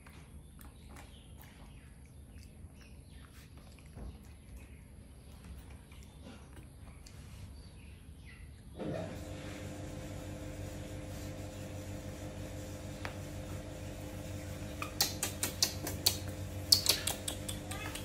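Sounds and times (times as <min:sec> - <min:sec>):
mechanical hum: 0:00.0 - 0:18.0
sharp clicks: 0:14.8 - 0:18.0.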